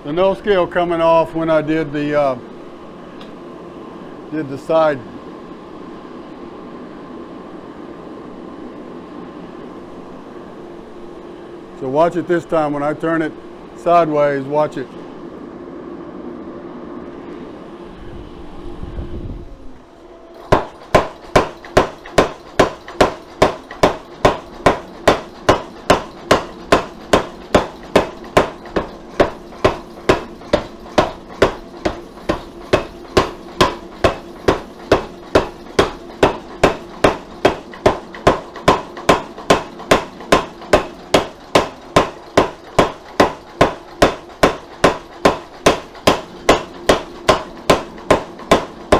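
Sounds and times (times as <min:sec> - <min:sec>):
machine running noise: 0:00.0 - 0:48.9
power hammer striking steel: 0:20.4 - 0:48.9.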